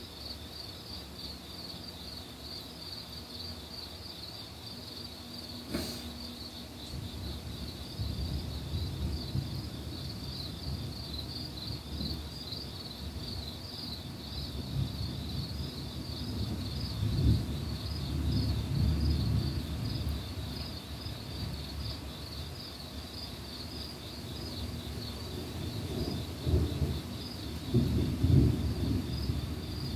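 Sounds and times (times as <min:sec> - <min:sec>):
night insects trilling: 0:00.0 - 0:29.9
distant thunder rumbling: 0:14.5 - 0:20.7, 0:24.9 - 0:29.9.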